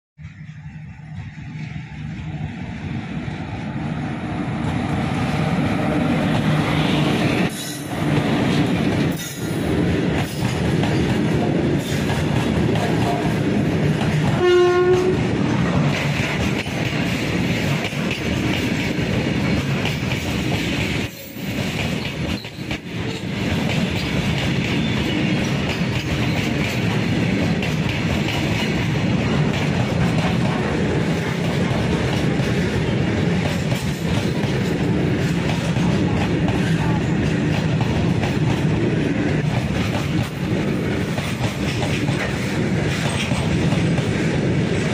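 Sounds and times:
freight train rumbling past: 0.2 - 44.9
wheel clatter on rail joints: 6.0 - 44.9
train horn blast: 12.8 - 13.4, 14.3 - 15.3.

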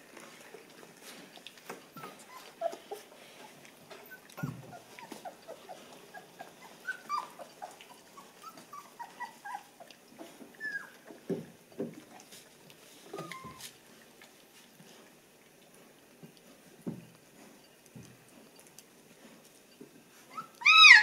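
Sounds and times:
puppies squeaking and whimpering: 1.9 - 11.1, 13.1 - 13.7, 20.3 - 21.0.

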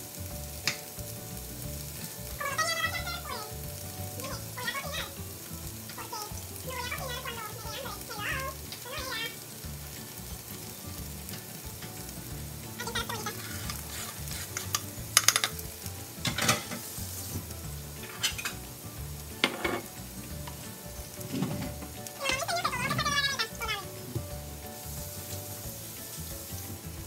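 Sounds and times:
vegetables sizzling in a frying pan: 0.0 - 27.0
knocks and scrapes on cutting board: 13.7 - 15.5, 19.4 - 19.9.

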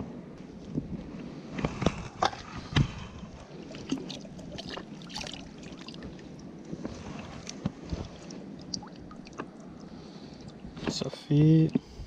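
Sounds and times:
water splashing and dripping: 3.6 - 6.4, 7.4 - 10.7.

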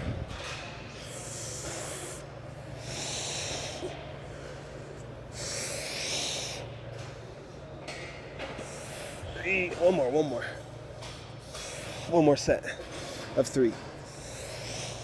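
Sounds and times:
steady low hum: 0.0 - 15.0
man breathing hard: 0.9 - 6.7, 14.1 - 15.0.

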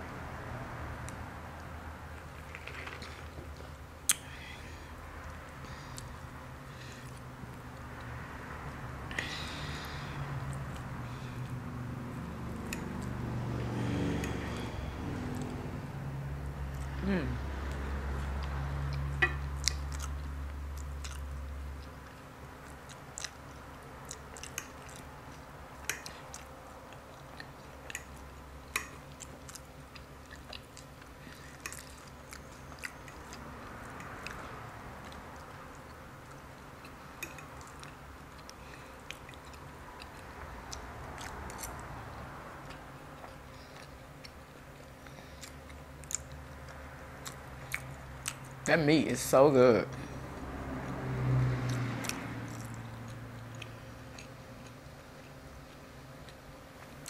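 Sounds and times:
person chewing and biting food: 16.7 - 41.9, 42.6 - 48.6, 50.9 - 57.0.

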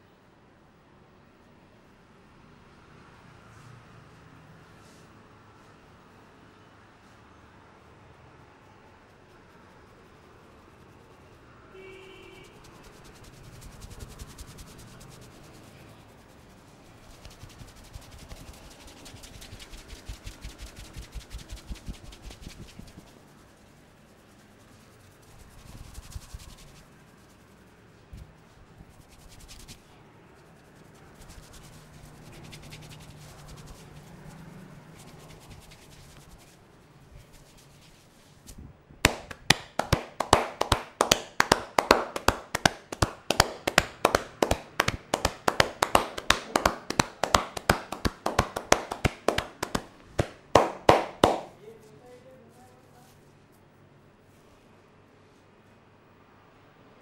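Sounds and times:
hands rubbing hair: 8.7 - 11.5, 12.4 - 53.6
hands slapping on head: 17.0 - 23.1, 35.0 - 36.6, 37.4 - 51.6.

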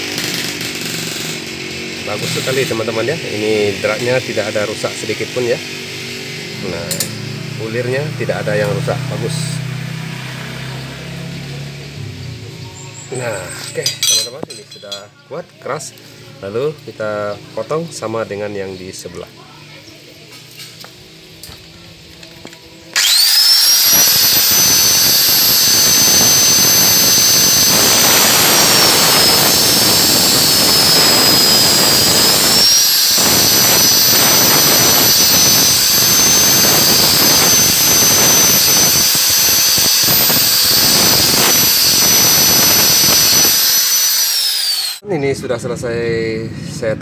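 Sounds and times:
angle grinder cutting steel: 0.0 - 12.1, 12.9 - 15.0, 22.4 - 45.0.

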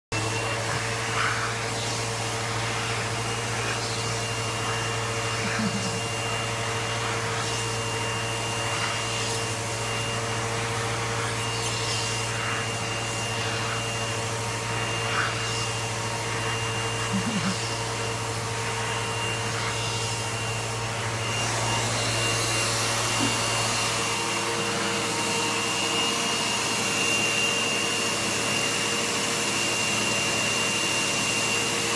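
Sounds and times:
vacuum cleaner whining: 0.1 - 31.9.

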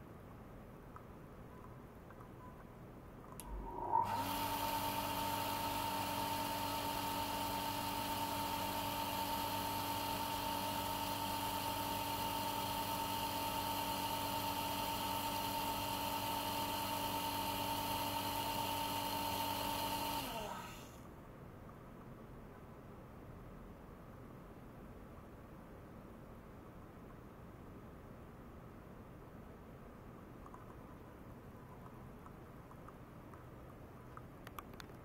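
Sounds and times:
pump whining and humming: 3.4 - 21.0.

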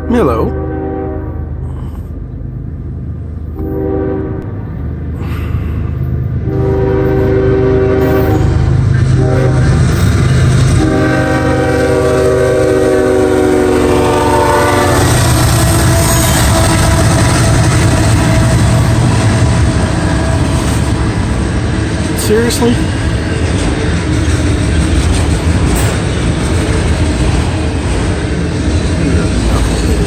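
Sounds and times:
train horn blasts: 0.0 - 1.6, 3.6 - 4.6, 6.4 - 10.0, 10.7 - 19.4
locomotive engine rumble: 0.0 - 30.0.

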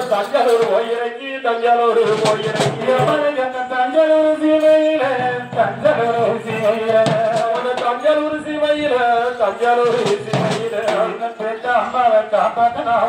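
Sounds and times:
man singing a lament: 0.0 - 13.0
bass drum: 2.0 - 3.3, 5.0 - 11.2
side drum strokes: 2.0 - 3.4, 4.6 - 8.5, 9.2 - 11.2.

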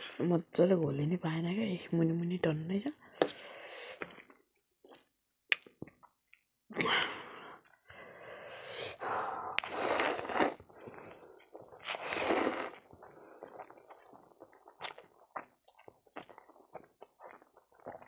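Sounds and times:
noodles slurped: 8.8 - 18.0.

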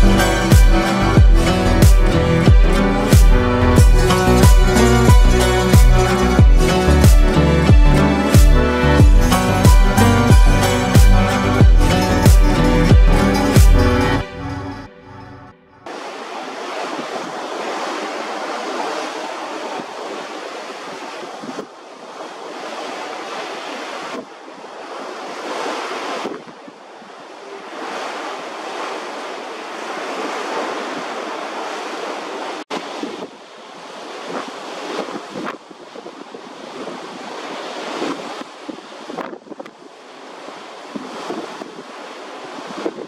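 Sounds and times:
sea water rushing: 0.0 - 15.0, 15.8 - 43.0
wind on microphone: 15.9 - 43.0.

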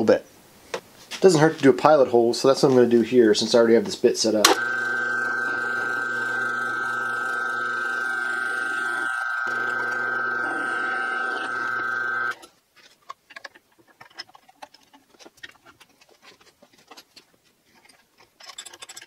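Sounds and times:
drill press whining: 4.5 - 12.4.

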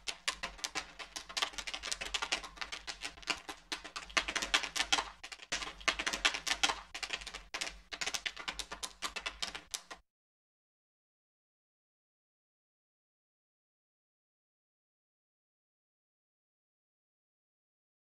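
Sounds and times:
popcorn popping: 0.0 - 10.0.

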